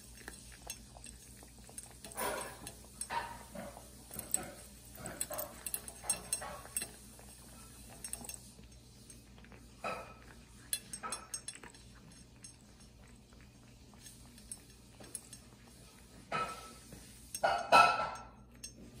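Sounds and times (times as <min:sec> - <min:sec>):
cat chewing and licking: 0:00.0 - 0:19.0
clinks on metal bowl: 0:00.0 - 0:19.0.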